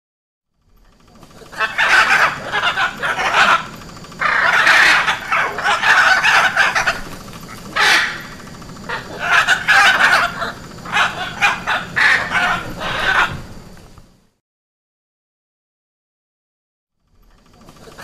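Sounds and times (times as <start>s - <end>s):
macaws squawking: 1.2s - 13.8s, 17.6s - 18.0s.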